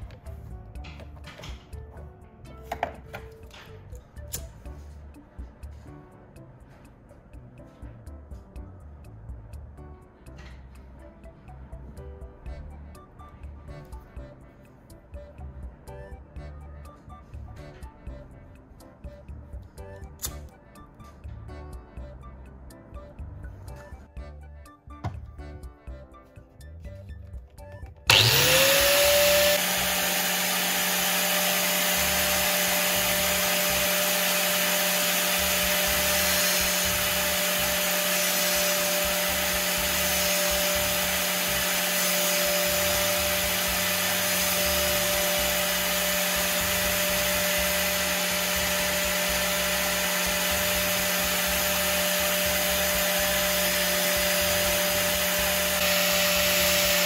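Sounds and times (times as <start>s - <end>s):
power tool motor whine: 28.1s - 57.0s.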